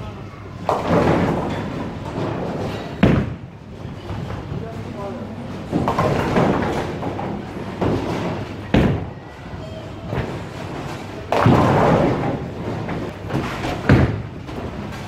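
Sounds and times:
bowling pins clattering: 0.6s - 15.0s
bowling ball thudding onto lane: 11.3s - 14.6s.

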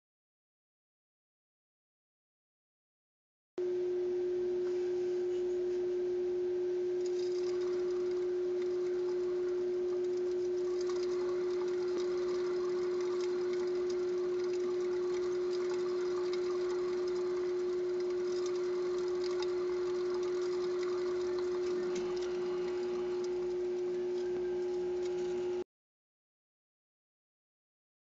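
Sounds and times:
steady hum: 3.6s - 25.6s
exercise wheel clicking and whirring: 7.0s - 25.6s.

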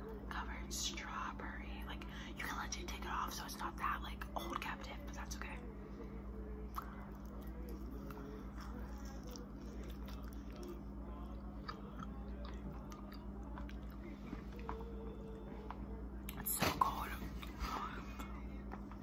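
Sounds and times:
low electrical hum: 0.0s - 19.0s
candy crunching while chewing: 6.7s - 15.4s.

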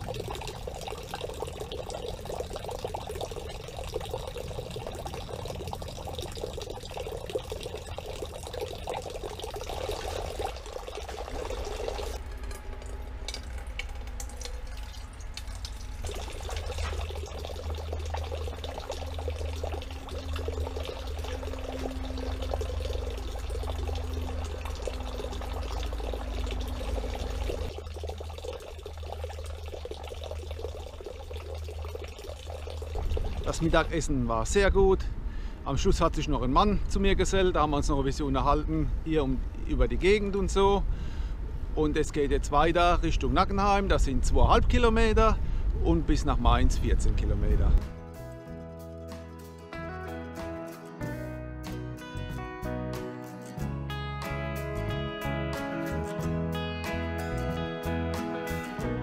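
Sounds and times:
water splashing into metal pot: 0.0s - 33.9s
low steady rumble: 0.0s - 47.9s.

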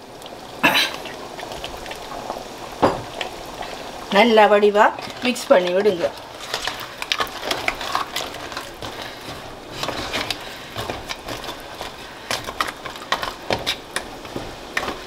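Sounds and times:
crab shells knocking and scraping: 4.9s - 15.0s
spatula stirring curry in pot: 4.9s - 15.0s.

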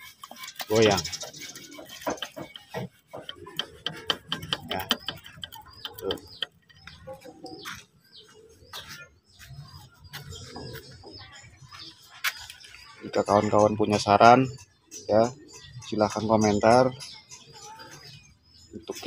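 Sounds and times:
birds chirping: 0.0s - 19.0s
sharp clicks and knocks: 1.8s - 7.1s.

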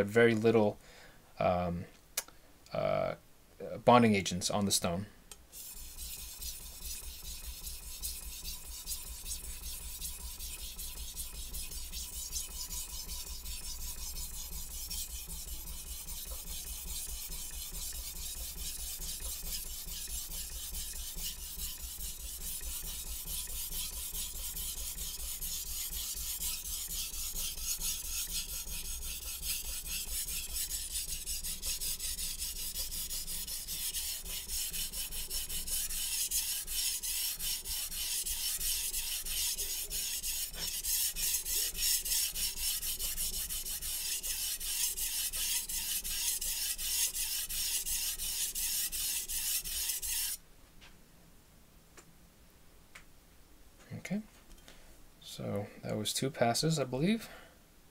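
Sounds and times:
knife scraping on whetstone: 5.5s - 50.4s.

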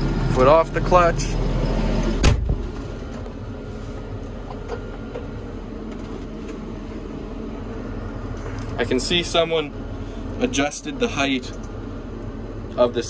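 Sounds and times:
tractor diesel engine idling: 0.0s - 2.2s
sharp knock: 2.2s - 2.6s.

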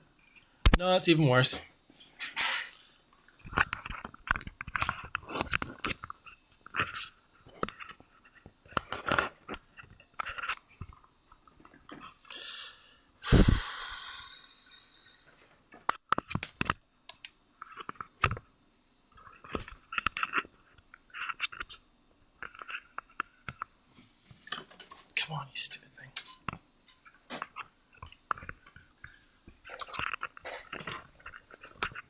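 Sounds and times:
scrape: 2.2s - 2.8s.

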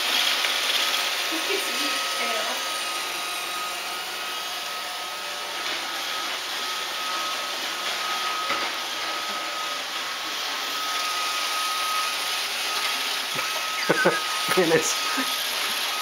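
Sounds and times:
robot vacuum whirring hum: 0.0s - 16.0s
high whine: 13.4s - 15.4s.

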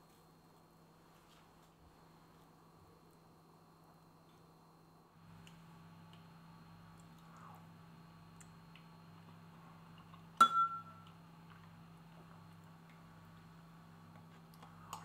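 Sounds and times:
faint low hum: 0.0s - 15.0s
kitchenware clink: 10.4s - 11.0s.

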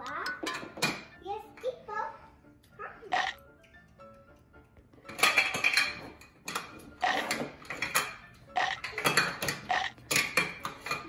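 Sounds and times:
plastic toys clattering on table: 5.0s - 11.0s.

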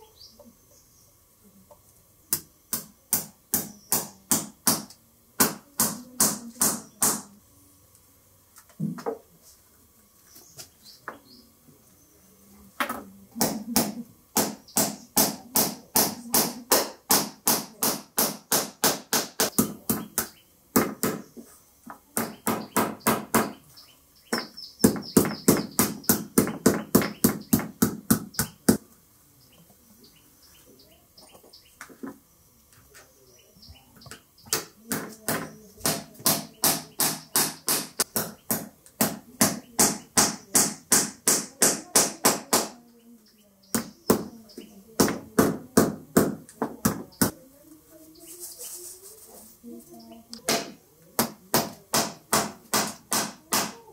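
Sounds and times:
hammer striking nails: 2.3s - 7.3s, 13.4s - 21.2s, 22.2s - 23.6s, 24.3s - 28.3s, 34.5s - 42.8s, 50.5s - 53.8s.

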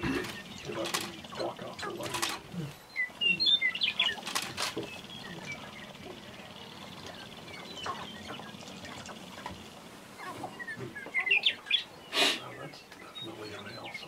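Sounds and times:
grouse chirping calls: 0.0s - 14.0s
sharp clicks: 4.0s - 5.0s.

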